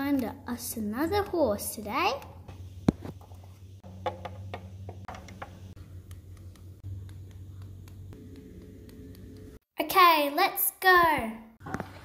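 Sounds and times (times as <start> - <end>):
low steady hum: 2.2 - 9.6.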